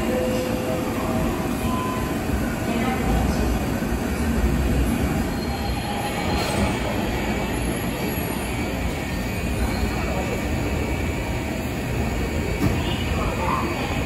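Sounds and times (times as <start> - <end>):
train rumbling: 0.0 - 14.0
faint high wheel squeal: 5.2 - 8.5.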